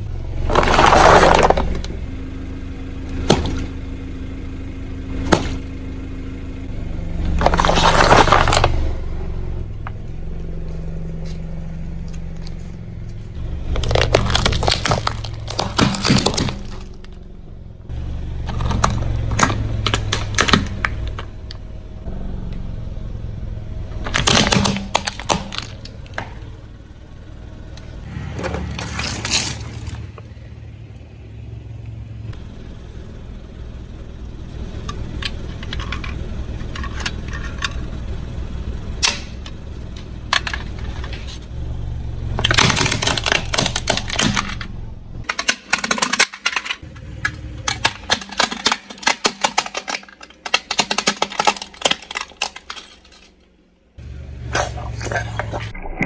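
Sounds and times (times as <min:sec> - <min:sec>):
car engine running at low speed: 0:00.0 - 0:56.0
tyres crushing objects: 0:00.4 - 0:02.0, 0:03.1 - 0:03.8, 0:05.2 - 0:05.7, 0:07.2 - 0:08.9, 0:13.4 - 0:17.2, 0:18.4 - 0:21.3, 0:24.0 - 0:26.5, 0:28.4 - 0:30.2, 0:42.3 - 0:53.8.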